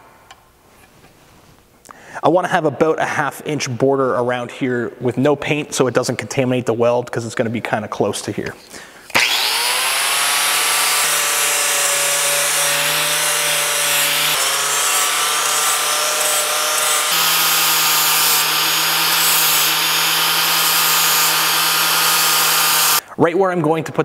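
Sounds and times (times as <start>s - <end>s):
angle grinder whining: 9.1s - 23.0s.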